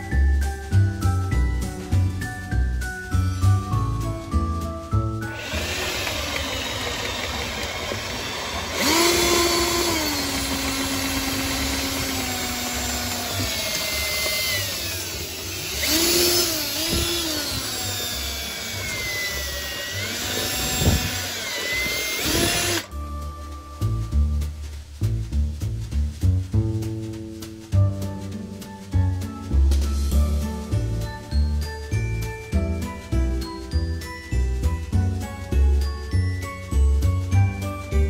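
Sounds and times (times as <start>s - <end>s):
background music: 0.0s - 38.0s
drain snake cable spinning: 5.2s - 22.9s
cordless drill motor whine: 5.3s - 22.9s.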